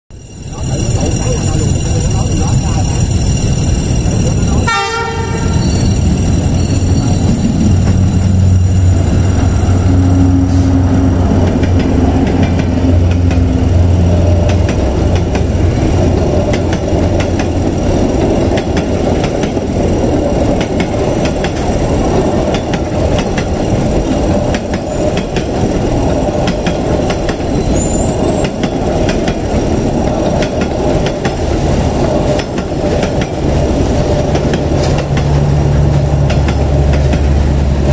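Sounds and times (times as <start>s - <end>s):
locomotive engine droning: 0.1s - 37.9s
train coaches rumbling past: 0.1s - 37.9s
wheels clicking over rail joints: 11.3s - 37.9s.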